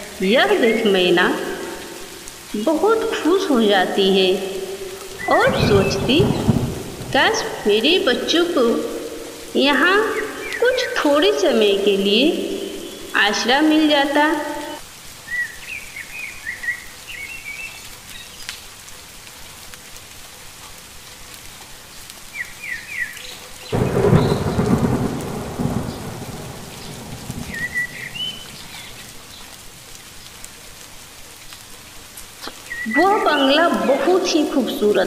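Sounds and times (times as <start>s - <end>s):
thunderclap rumbling: 0.0s - 14.8s, 23.7s - 29.4s
heavy rain: 0.0s - 35.0s.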